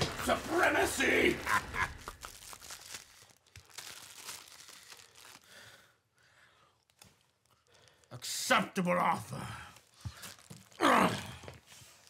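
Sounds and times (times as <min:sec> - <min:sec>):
plastic bag crinkling and tearing: 0:00.0 - 0:06.0, 0:06.7 - 0:08.1, 0:09.8 - 0:12.0.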